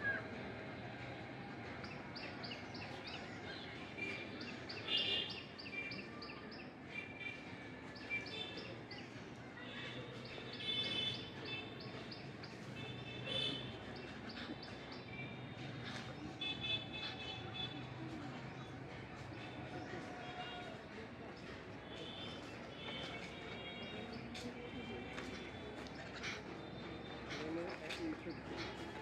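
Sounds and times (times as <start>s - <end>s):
birds chirping: 10.2s - 17.7s, 21.4s - 29.0s.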